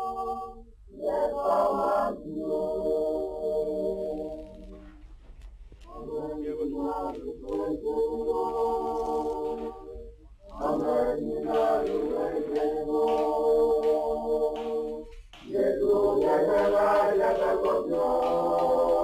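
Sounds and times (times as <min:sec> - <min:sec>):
choir singing: 0:00.0 - 0:04.8, 0:05.9 - 0:19.0.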